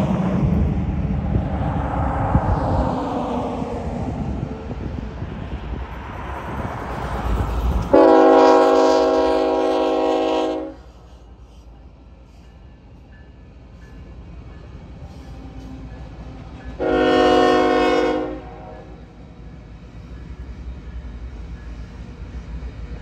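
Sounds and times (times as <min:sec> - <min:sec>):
freight train rumbling: 0:00.0 - 0:23.0
locomotive air horn blasts: 0:07.9 - 0:10.9, 0:16.8 - 0:19.0.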